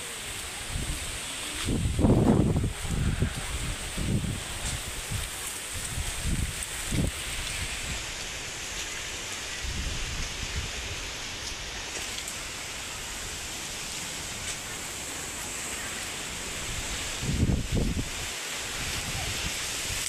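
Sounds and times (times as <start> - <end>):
wind buffeting the microphone: 0.3 - 15.5, 16.1 - 20.0
wind rushing: 0.7 - 8.6, 16.3 - 20.0.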